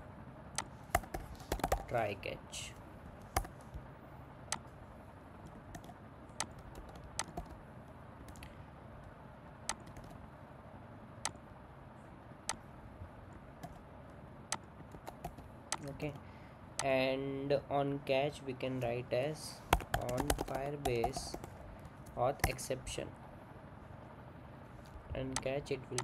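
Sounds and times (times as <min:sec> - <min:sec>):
computer keyboard keystrokes: 0:00.6 - 0:01.9, 0:05.4 - 0:07.6, 0:09.7 - 0:10.2, 0:13.6 - 0:13.8, 0:14.5 - 0:15.9, 0:19.7 - 0:21.5, 0:22.4 - 0:22.6.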